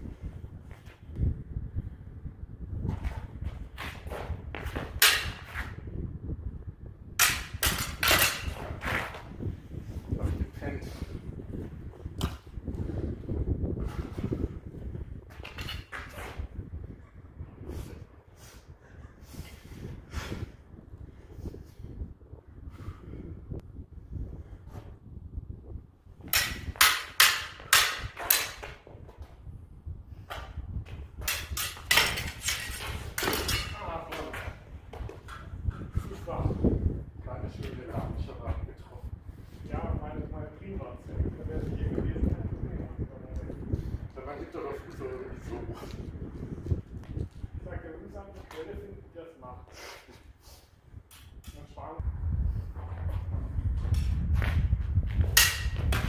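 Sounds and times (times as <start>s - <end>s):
sabre blades clashing: 5.0s - 5.5s, 7.2s - 8.7s, 26.3s - 28.8s, 31.2s - 33.9s, 55.4s - 56.0s.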